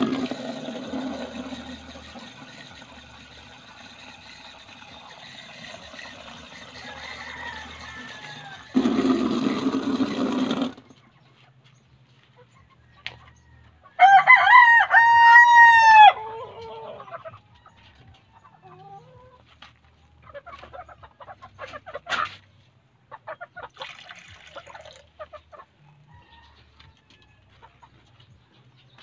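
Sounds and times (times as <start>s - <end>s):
rooster crowing: 6.5s - 9.0s, 13.3s - 16.2s.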